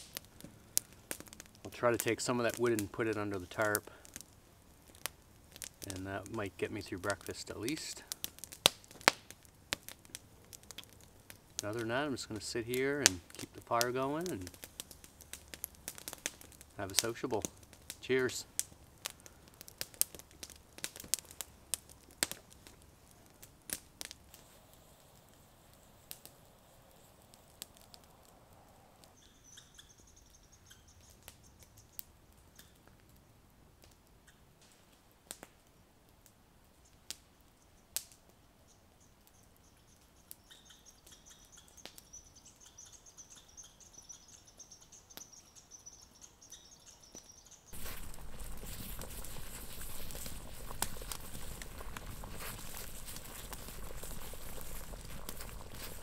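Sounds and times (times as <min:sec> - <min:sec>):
campfire crackling and popping: 0:00.0 - 0:56.0
faint bird song: 0:28.6 - 0:33.4, 0:36.7 - 0:56.0
water boiling in a pot: 0:47.7 - 0:56.0.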